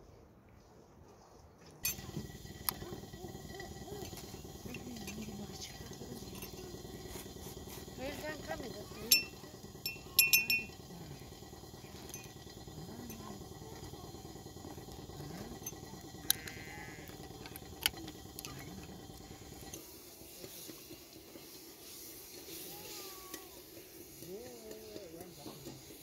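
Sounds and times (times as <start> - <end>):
outdoor background noise: 0.0 - 26.0
metal spoon clinking glass cup: 1.8 - 14.1.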